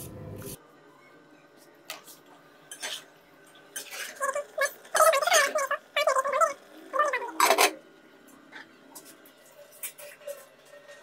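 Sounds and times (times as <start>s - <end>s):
low hum: 0.0s - 0.6s.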